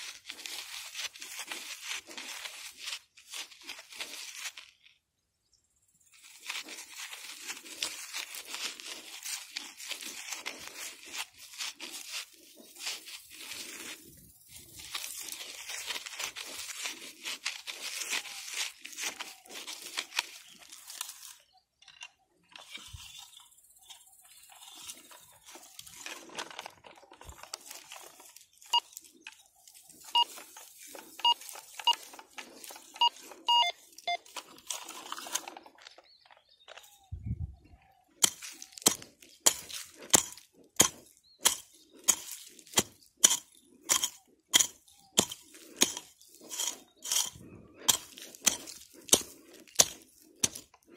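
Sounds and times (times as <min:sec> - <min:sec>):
hand digger scraping soil: 0:00.0 - 0:04.9, 0:06.0 - 0:37.1, 0:38.2 - 0:50.9
metal detector short beeps: 0:30.1 - 0:30.6, 0:31.2 - 0:32.2, 0:32.8 - 0:34.3.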